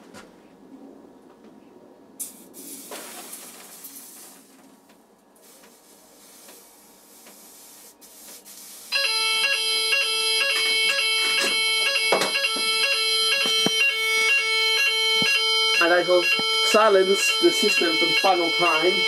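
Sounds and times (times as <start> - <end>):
faint hiss: 2.2 - 4.6, 5.4 - 8.9
fire alarm sounder tone: 8.9 - 19.0
sharp knocks: 11.3 - 13.9.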